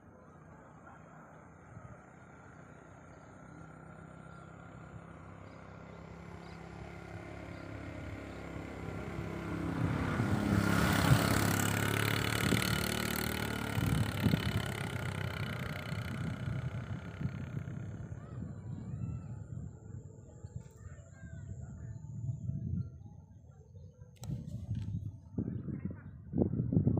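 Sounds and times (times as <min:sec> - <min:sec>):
vehicle engine passing by: 0:01.6 - 0:22.6.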